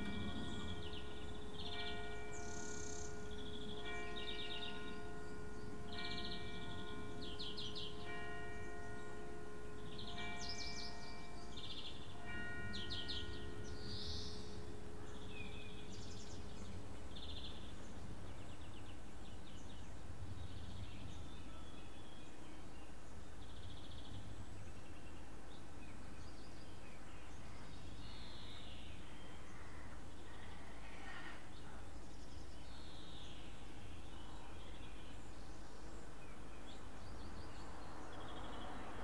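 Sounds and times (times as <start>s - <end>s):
church bell tolling: 0.0s - 18.2s
small birds chirping: 0.0s - 39.0s.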